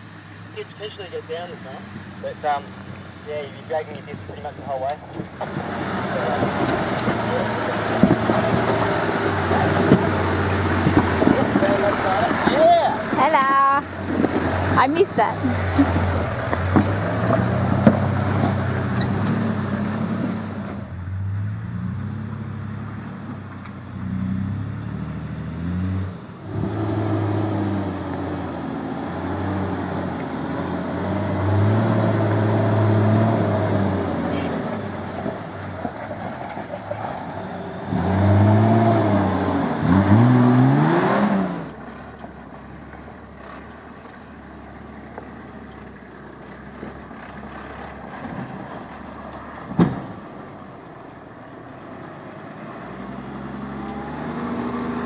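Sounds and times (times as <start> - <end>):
car engine revving: 0.0 - 55.0.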